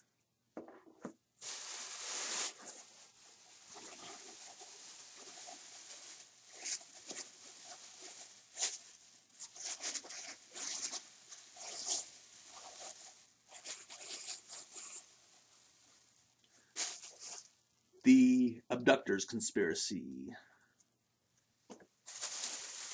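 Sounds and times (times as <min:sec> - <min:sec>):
plastic bag crinkling: 0:01.4 - 0:15.0, 0:16.6 - 0:17.5, 0:22.0 - 0:22.9.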